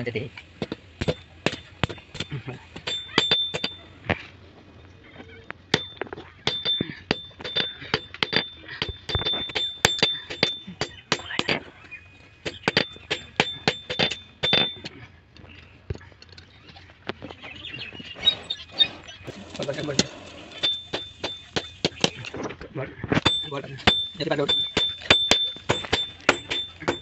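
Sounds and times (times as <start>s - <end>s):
hammer ringing on anvil: 2.8s - 3.8s, 5.8s - 11.4s, 20.6s - 21.7s, 23.3s - 27.0s.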